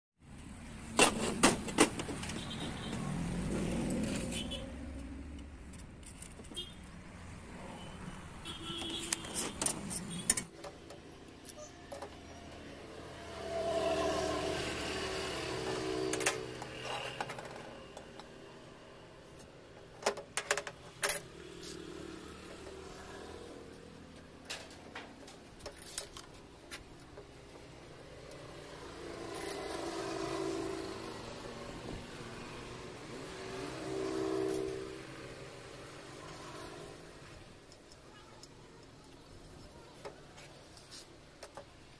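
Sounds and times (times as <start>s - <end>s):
engine hum: 0.3s - 6.6s, 8.8s - 37.8s
motor vehicle running: 1.3s - 6.5s, 11.9s - 37.6s.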